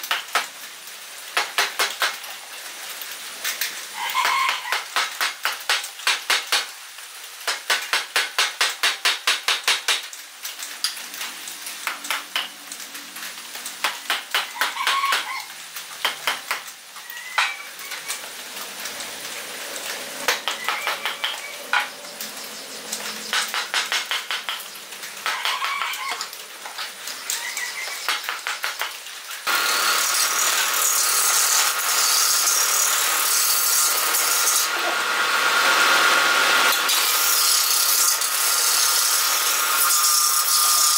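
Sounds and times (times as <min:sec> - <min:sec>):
lathe chisel knocking on log: 0:23.3 - 0:24.6
hiss of wood cutting: 0:29.4 - 0:40.9.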